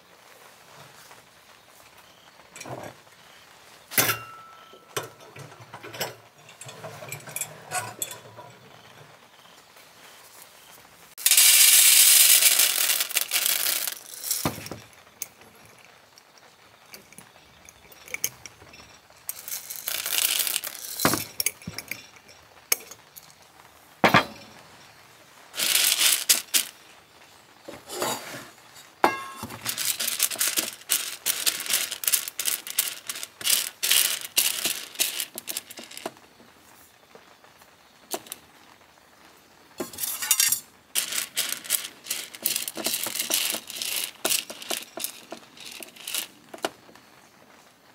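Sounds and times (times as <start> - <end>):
coffee beans rattling on metal tray: 2.5 - 9.6, 11.2 - 23.4, 24.0 - 24.9, 25.5 - 26.9, 27.7 - 36.3, 38.1 - 38.4, 39.8 - 47.0.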